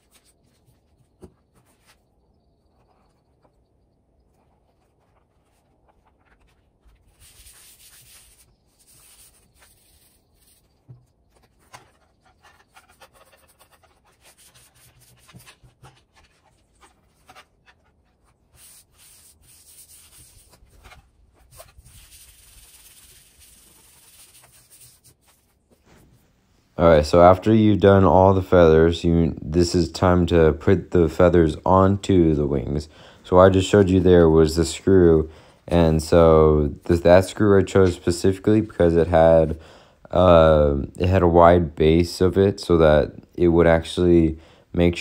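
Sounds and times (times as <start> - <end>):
hands rubbing foam sheets: 0.0 - 26.3.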